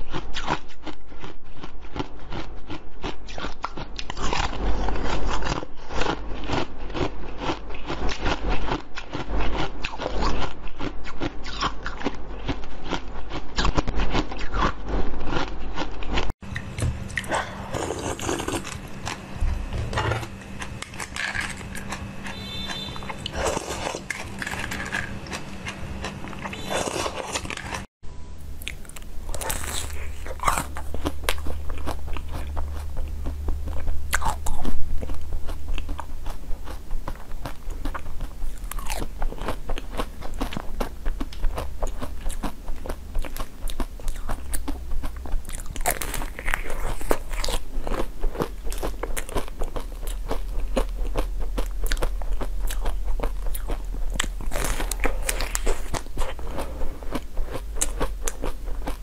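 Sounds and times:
jelly sweets bitten and chewed: 0.0 - 59.0
faint steady hum: 16.4 - 59.0.

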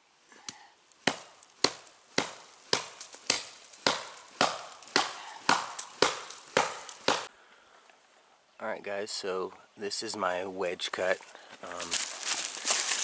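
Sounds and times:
hatchet chopping wood: 1.0 - 7.3.

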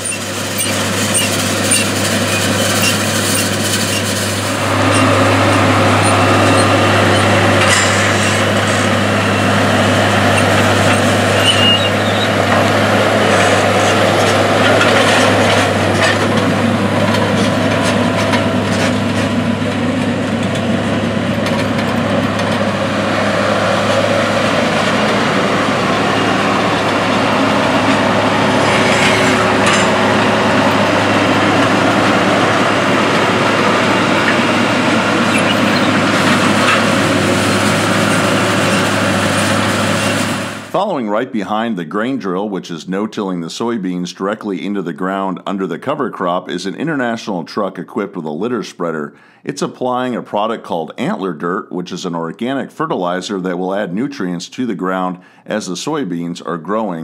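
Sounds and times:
tractor diesel engine running: 0.0 - 42.5.

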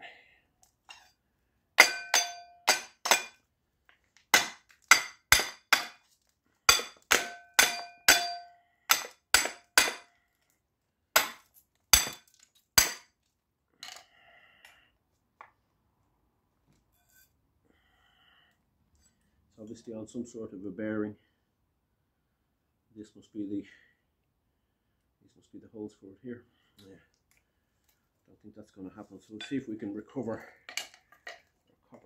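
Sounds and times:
hammer striking metal housing: 1.8 - 3.3, 6.7 - 10.0.

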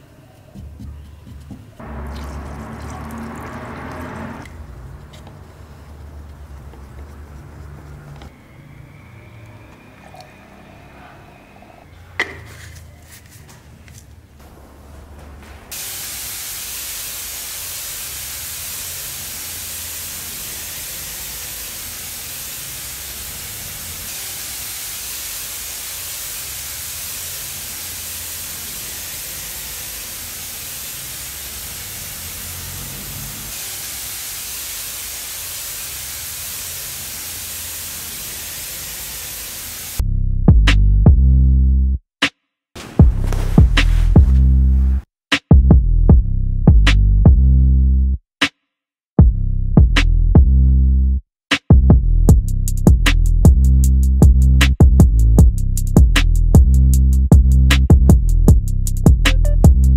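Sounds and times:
spray gun hissing: 1.8 - 8.3, 15.7 - 40.0.

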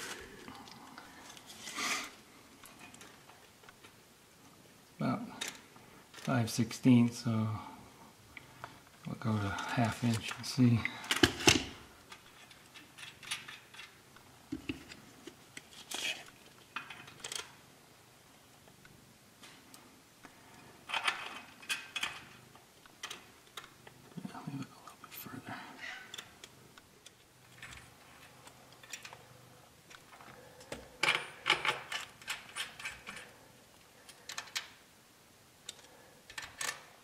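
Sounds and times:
metal bolts and tools clinking: 30.6 - 33.3.

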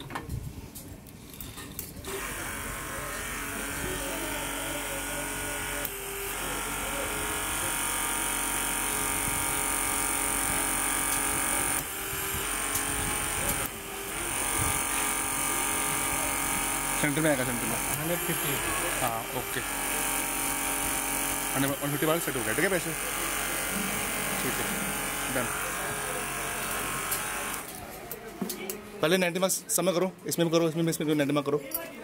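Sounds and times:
electric hydraulic pump running: 2.0 - 27.8.

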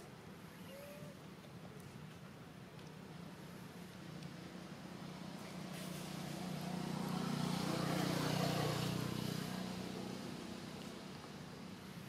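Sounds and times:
vehicle engine passing by: 4.9 - 11.2.

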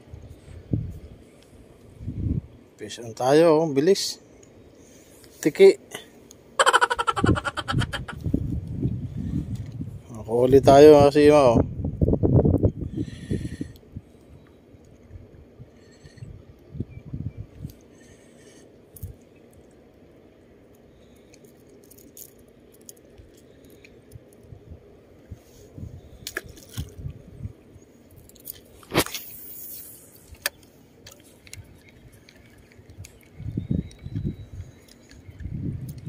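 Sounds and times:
fishing tackle clicks and rustles: 18.9 - 24.6, 25.2 - 27.4, 28.0 - 36.0.

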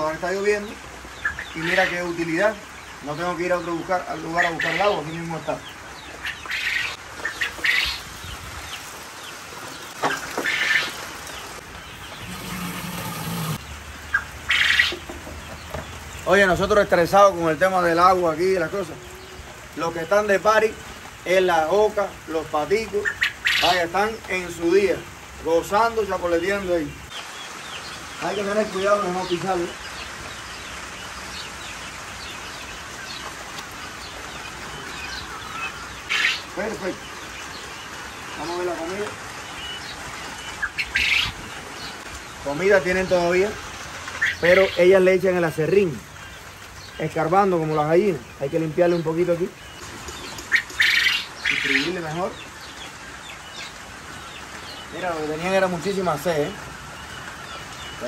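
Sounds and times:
young quail chirping: 0.0 - 8.8, 10.1 - 11.0, 11.8 - 16.6, 20.2 - 25.0, 26.5 - 45.2, 45.8 - 58.0
steady rain: 0.0 - 58.0
tap running water: 11.8 - 13.6
faint quail chirps: 49.7 - 52.8.

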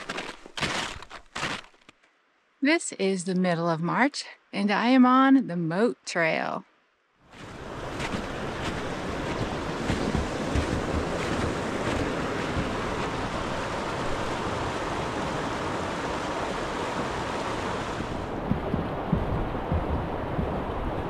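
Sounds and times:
snowshoe footsteps on snow: 0.0 - 2.0, 7.3 - 13.7
steady rushing noise: 7.4 - 21.0.

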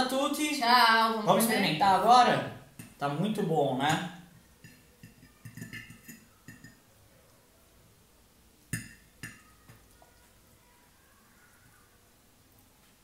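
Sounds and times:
forks clinking on a plate: 4.6 - 6.8, 8.8 - 9.5.

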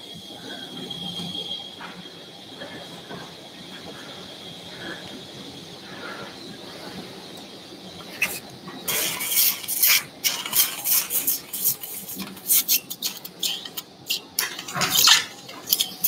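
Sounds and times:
suction faint high whine: 0.0 - 16.0
wet slurping hisses of suction: 8.0 - 16.0.

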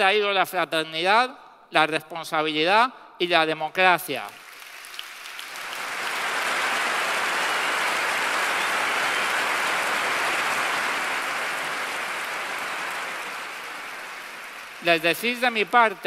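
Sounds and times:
large crowd applauding: 4.2 - 16.0.

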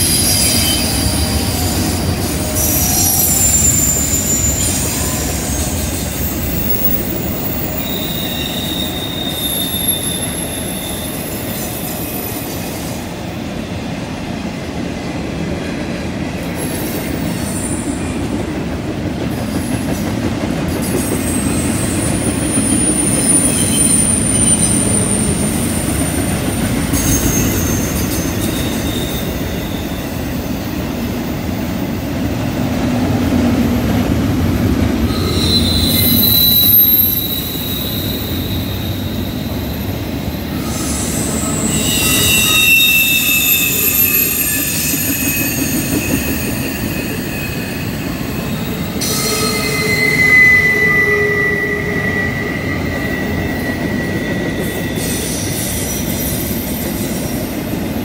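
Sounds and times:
high-pitched wheel squeal: 0.0 - 12.8, 21.0 - 26.0, 26.9 - 30.4, 35.0 - 57.4
train wheels rumbling on rail: 0.0 - 58.0.

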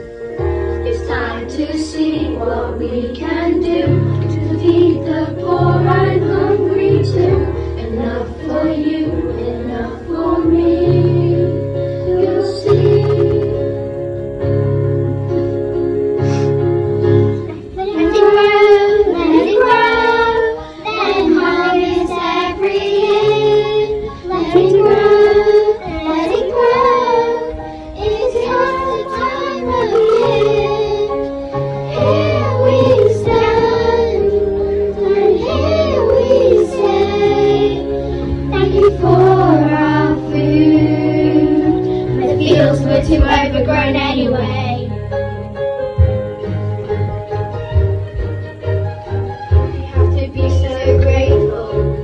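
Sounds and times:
instrumental backing music: 0.0 - 52.0
children singing in unison: 0.8 - 13.8, 17.7 - 44.9.

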